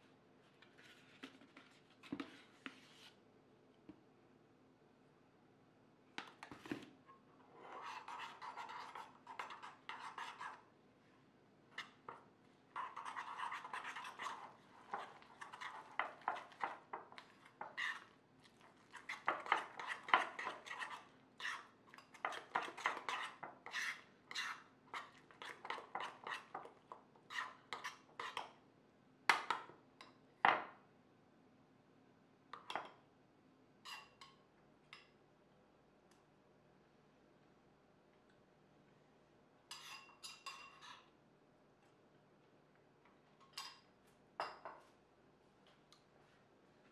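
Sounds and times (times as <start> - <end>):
metal spoon scraping ceramic bowl: 7.5 - 10.6, 12.8 - 18.1, 18.9 - 26.5, 39.7 - 41.1.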